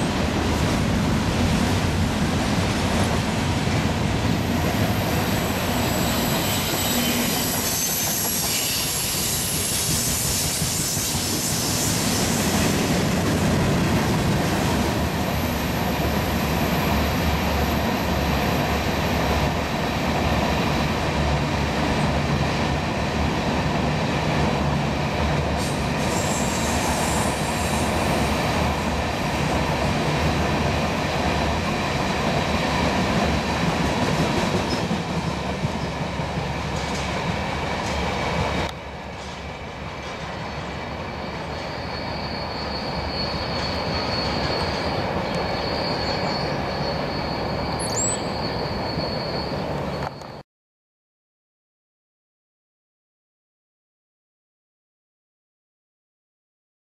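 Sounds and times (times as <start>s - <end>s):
freight train wheels rumbling: 0.0s - 50.4s
wheel squeal: 5.6s - 12.6s, 41.1s - 50.4s.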